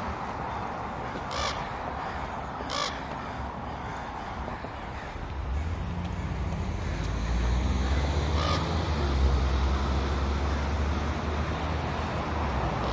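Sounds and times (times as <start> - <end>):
crow cawing: 0.5 - 9.0
bus engine rumble passing: 3.8 - 12.9.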